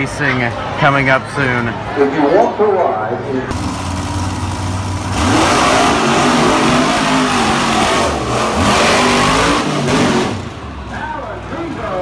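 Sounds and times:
truck engine revving: 3.5s - 12.0s.

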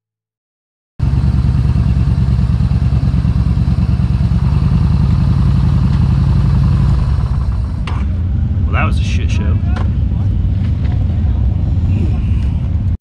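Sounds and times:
motorcycle engine running: 1.0s - 8.9s.

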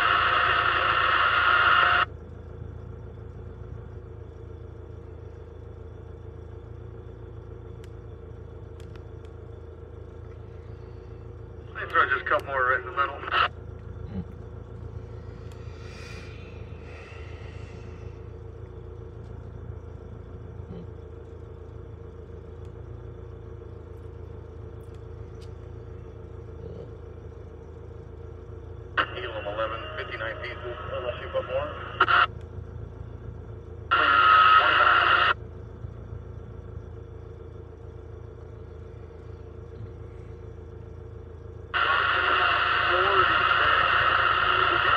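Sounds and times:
heavy diesel machinery rumbling: 0.0s - 44.9s.

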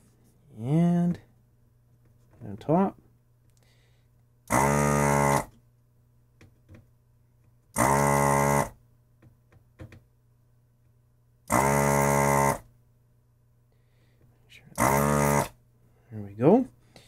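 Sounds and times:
desoldering pump buzzing: 4.5s - 5.6s, 7.7s - 8.8s, 11.5s - 12.7s, 14.8s - 15.6s.

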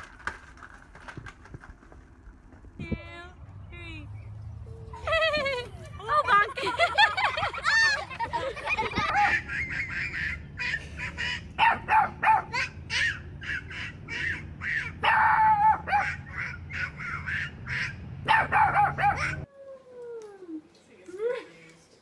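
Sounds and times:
dog barking high yaps: 11.6s - 19.4s.

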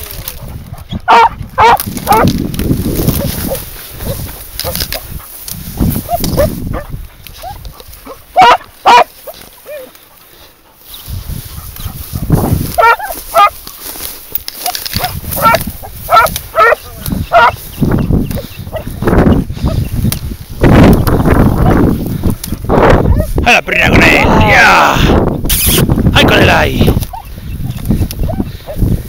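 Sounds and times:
rustling through dry grass: 0.0s - 29.0s
dog barking sharply: 1.1s - 2.2s, 8.4s - 9.1s, 12.8s - 13.5s, 15.0s - 17.6s.

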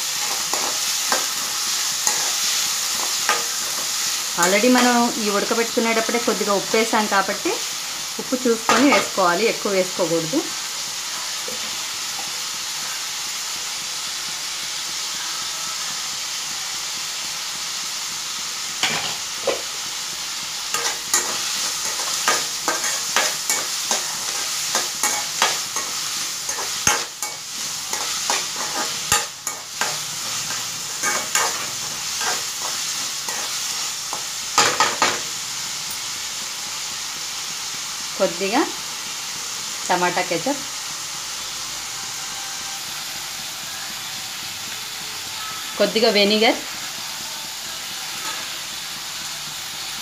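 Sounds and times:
vegetables sizzling in oil: 0.0s - 50.0s
metal ladle scraping pan: 20.7s - 33.6s.

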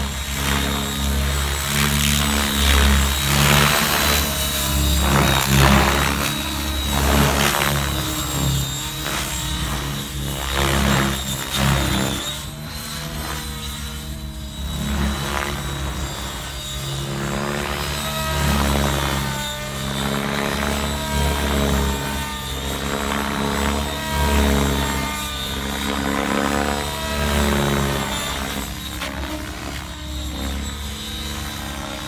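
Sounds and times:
high whine: 0.0s - 32.0s
rc helicopter rotor and motor: 0.0s - 32.0s.

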